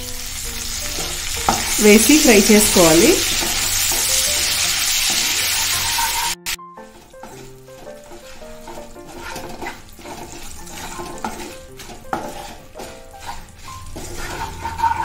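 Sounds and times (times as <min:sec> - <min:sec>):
soft background music: 0:00.0 - 0:15.0
spices frying in oil: 0:00.0 - 0:15.0
spatula knocking on pan: 0:06.9 - 0:15.0.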